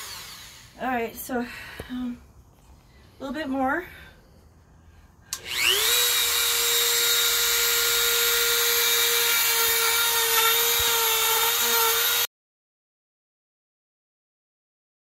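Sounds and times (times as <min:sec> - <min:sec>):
rotary tool whining carving wood: 0:00.0 - 0:00.8, 0:05.3 - 0:12.3.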